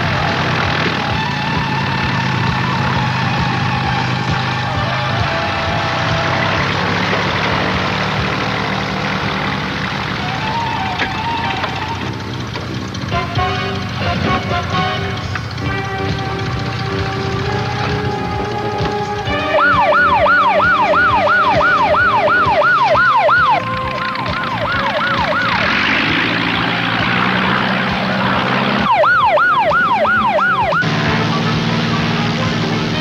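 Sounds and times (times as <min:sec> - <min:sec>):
siren yelping: 0:10.0 - 0:12.3, 0:17.4 - 0:30.9
low sustained music tones: 0:10.9 - 0:33.0
rushing noise: 0:16.6 - 0:31.9.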